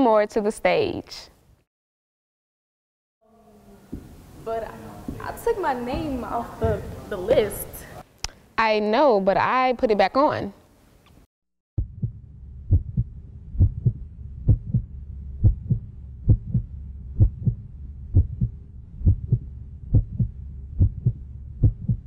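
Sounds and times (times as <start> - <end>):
heartbeat thumps: 11.8 - 22.0
low steady hum: 11.8 - 22.0.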